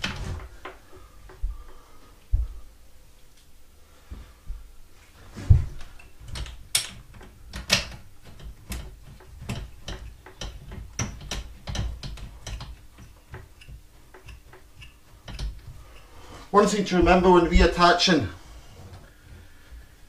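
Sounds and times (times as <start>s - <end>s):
clicks and knocks of hard parts: 0.0s - 1.8s, 5.5s - 16.1s.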